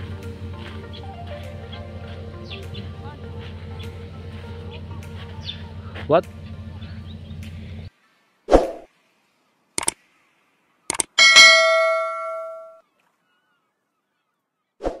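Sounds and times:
notification bell ding: 0:11.2 - 0:12.8.

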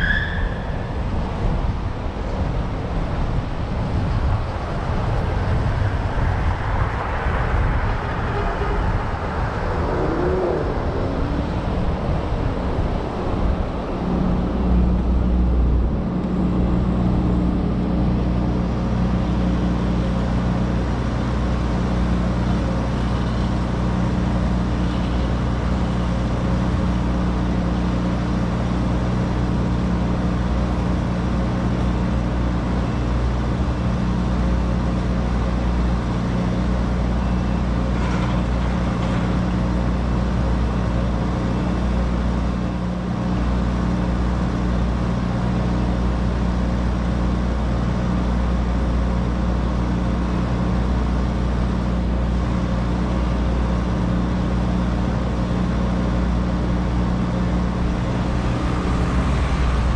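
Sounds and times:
car engine and road drone: 0:00.0 - 0:59.9
traffic noise: 0:00.0 - 0:59.9.

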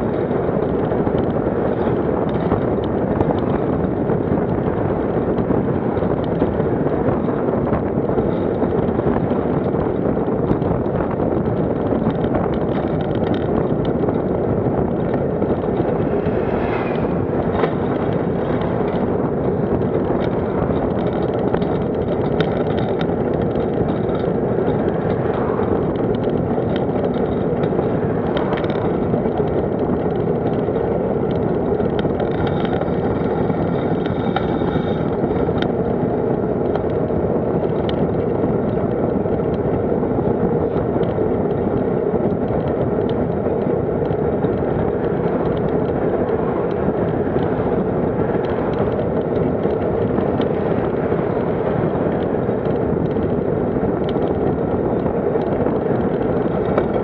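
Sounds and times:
road noise: 0:00.0 - 0:57.0
wind noise on microphone: 0:00.0 - 0:57.0
cars passing: 0:13.3 - 0:21.1, 0:21.8 - 0:35.6
faint rising whine: 0:15.1 - 0:19.0.

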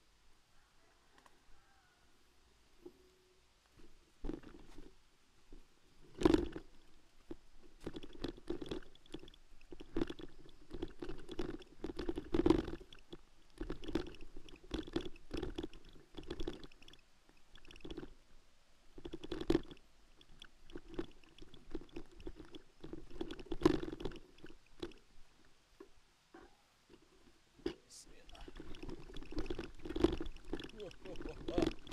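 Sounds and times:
bicycle jolting on dirt trail: 0:06.0 - 0:18.1, 0:19.0 - 0:25.1, 0:28.1 - 0:31.9.

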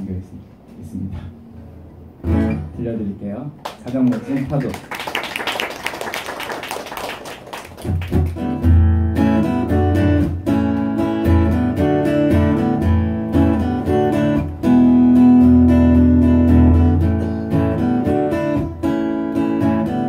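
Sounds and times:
acoustic guitar chords: 0:01.3 - 0:02.9, 0:07.8 - 0:20.0.

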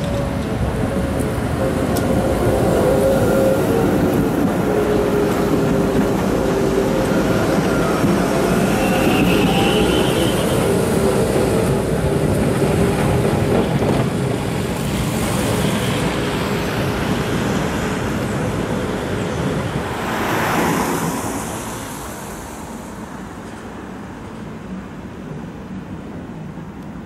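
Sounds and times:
tram pulling away: 0:00.0 - 0:21.4
road traffic on wet street: 0:00.0 - 0:27.0.

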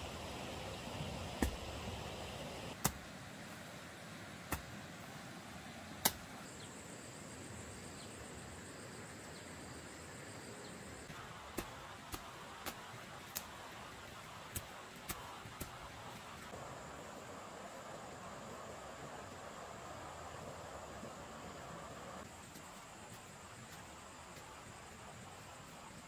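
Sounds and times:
hoe striking dry soil: 0:01.4 - 0:01.7, 0:11.5 - 0:13.6.

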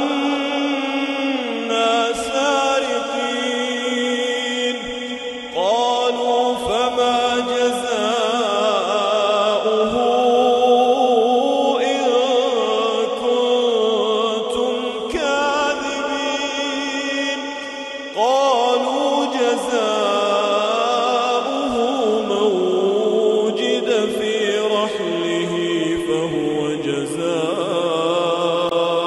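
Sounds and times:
man chanting melodically: 0:00.0 - 0:29.0.

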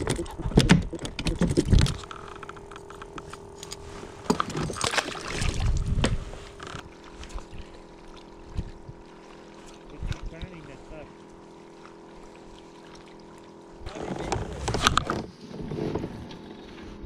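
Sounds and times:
fish splashing into water: 0:04.6 - 0:05.8.

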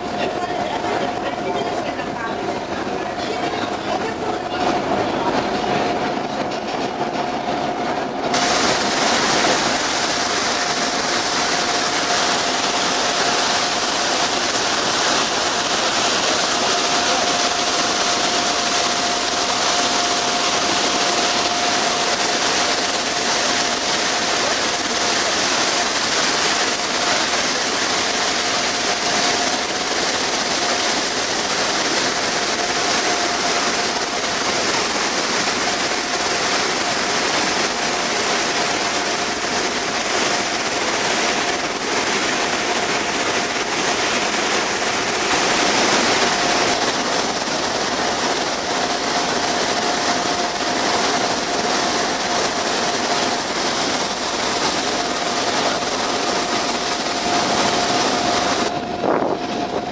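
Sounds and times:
churning sea water: 0:00.0 - 0:59.9
steady whine: 0:00.0 - 0:59.9
wind noise: 0:56.3 - 0:59.9.

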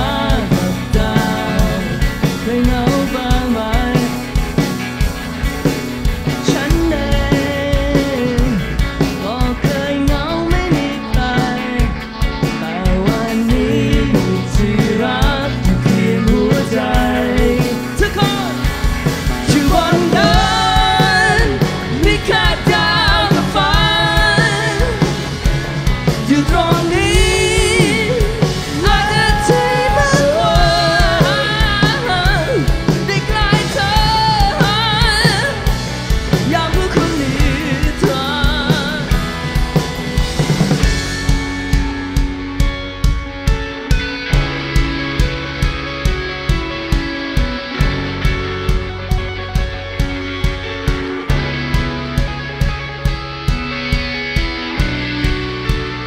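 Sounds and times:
man singing: 0:00.0 - 0:04.5, 0:06.3 - 0:39.4
live rock band playing: 0:00.0 - 0:56.0.

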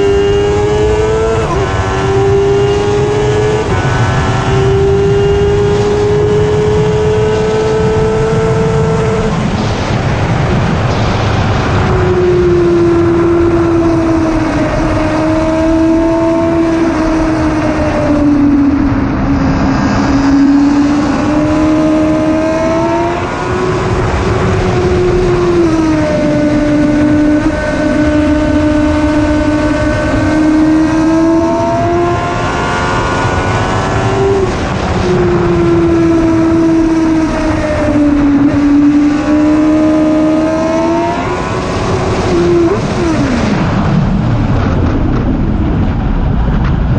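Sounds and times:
motorcycle engine at high revs: 0:00.0 - 0:45.6.

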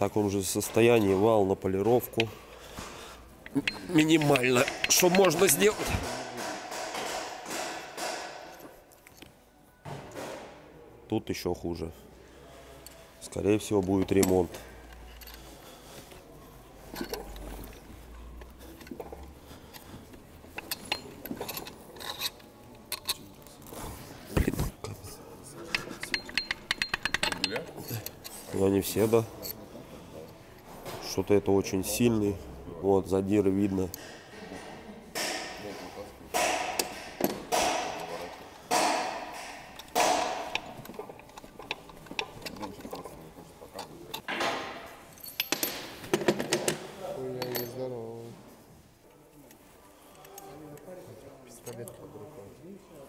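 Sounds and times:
metal clinks and scraping: 0:00.4 - 0:09.5, 0:12.7 - 0:31.3, 0:35.2 - 0:48.0
hand tool clicking: 0:03.4 - 0:09.2, 0:25.7 - 0:28.4
metal clanks on crankshaft: 0:03.6 - 0:08.6, 0:25.7 - 0:28.3, 0:36.3 - 0:43.0.

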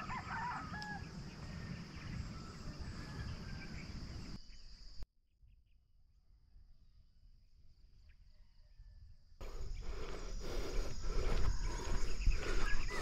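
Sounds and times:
high insect drone: 0:09.4 - 0:13.0.

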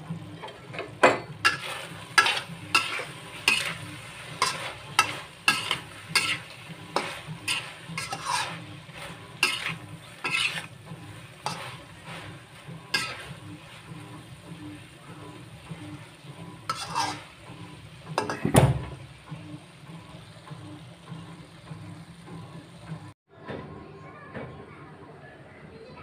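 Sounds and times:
frying sizzle: 0:00.0 - 0:23.2
metal spatula scraping a wok: 0:00.1 - 0:18.4.

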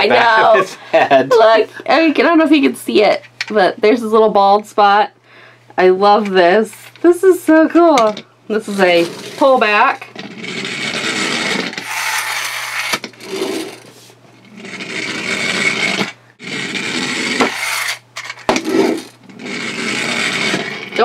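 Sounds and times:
toy pullback motor whirring: 0:10.4 - 0:13.8, 0:14.6 - 0:18.4, 0:19.0 - 0:20.9.

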